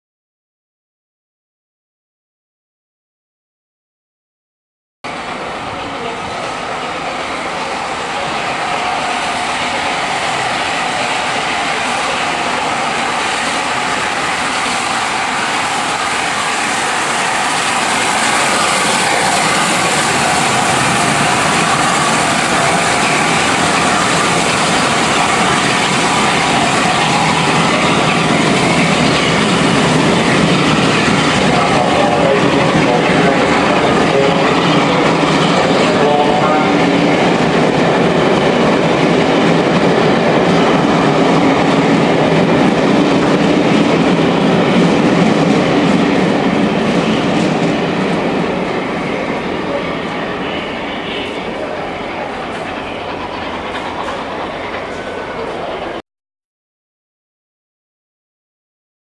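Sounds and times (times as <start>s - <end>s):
steam locomotive passing: 5.1s - 56.0s
train coaches passing: 5.1s - 56.0s.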